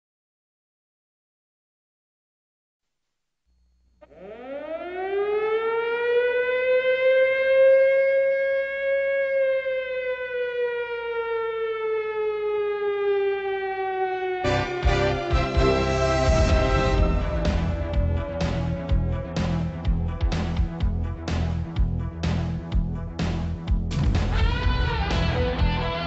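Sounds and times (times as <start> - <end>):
siren winding up and down: 4.0 - 20.2
music: 14.4 - 26.0.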